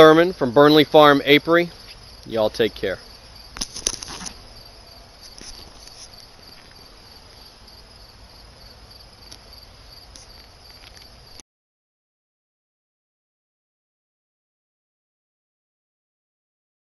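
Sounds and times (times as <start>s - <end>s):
high-pitched insect chirring: 0.0s - 11.4s.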